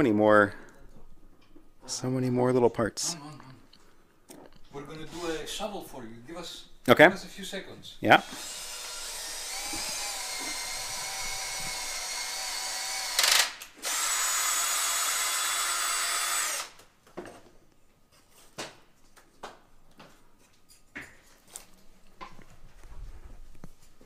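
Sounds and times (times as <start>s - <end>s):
cordless drill whining: 8.2s - 16.8s
drill click: 8.2s - 16.8s.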